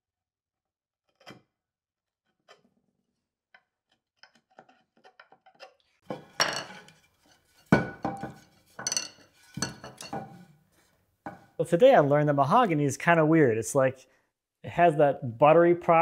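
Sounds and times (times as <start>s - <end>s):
tools knocking on wooden workbench: 7.7s - 10.4s.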